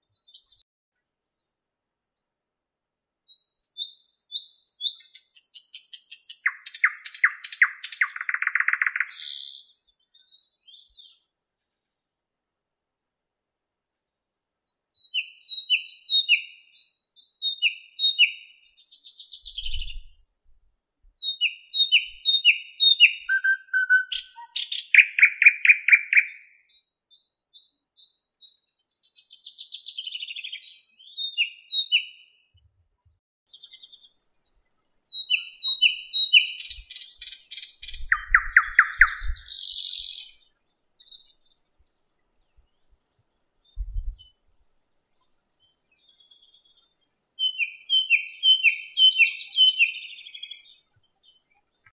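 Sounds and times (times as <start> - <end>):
bird singing whistled notes: 3.2 - 11.3, 15.0 - 20.2, 20.8 - 32.4, 33.5 - 41.8, 43.6 - 51.9.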